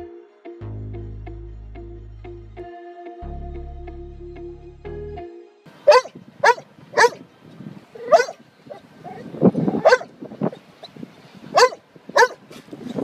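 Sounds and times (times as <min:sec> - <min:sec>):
dog barking and yelping: 0:05.9 - 0:07.2, 0:08.0 - 0:10.9, 0:11.5 - 0:12.6.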